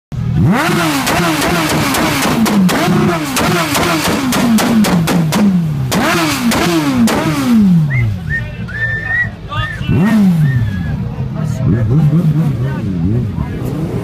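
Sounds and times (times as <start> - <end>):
engine revving: 0.2 - 8.4, 9.8 - 14.0
sharp exhaust cracks: 0.6 - 7.8.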